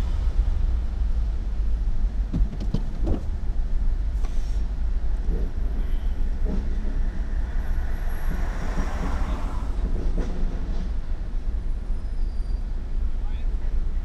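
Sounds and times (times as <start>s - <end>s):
car cabin rumble: 0.0s - 10.2s
rushing noise: 0.0s - 13.1s.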